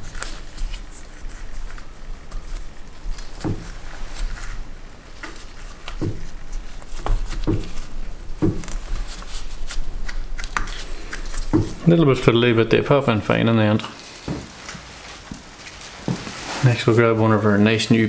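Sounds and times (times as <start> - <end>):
gloved fingers rubbing: 0.0 - 12.8.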